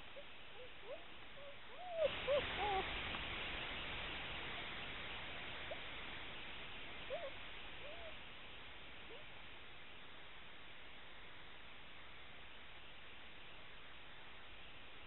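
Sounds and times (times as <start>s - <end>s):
steady hiss: 0.0s - 15.0s
puppies whimpering: 0.6s - 2.9s.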